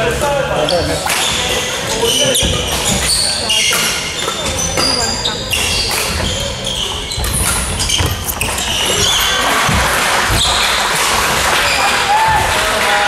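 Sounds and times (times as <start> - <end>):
shoes squeaking on floor: 0.5 - 13.0
footfalls thudding: 7.1 - 13.0.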